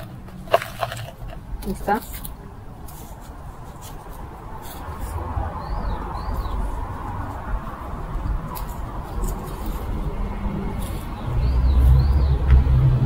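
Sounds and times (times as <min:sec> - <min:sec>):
soil rustling in plastic cup: 0:00.0 - 0:05.2, 0:08.5 - 0:11.3.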